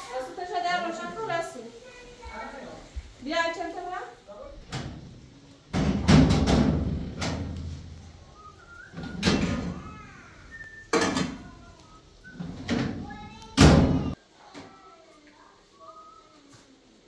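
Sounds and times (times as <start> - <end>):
cabinet doors and cookware knocking: 5.7 - 7.5.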